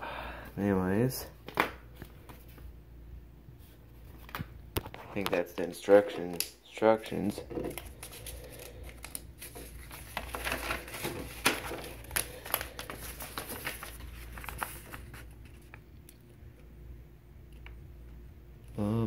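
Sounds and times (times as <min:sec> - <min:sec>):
paper crinkling and rustling: 0:07.3 - 0:15.9.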